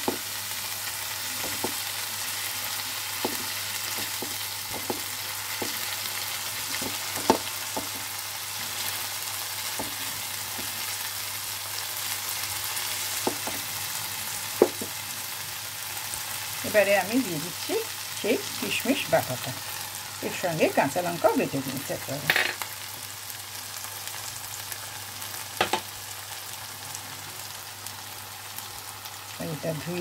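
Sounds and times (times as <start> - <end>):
paste sizzling in hot oil: 0.0 - 29.4
spatula stirring in pan: 1.1 - 11.4.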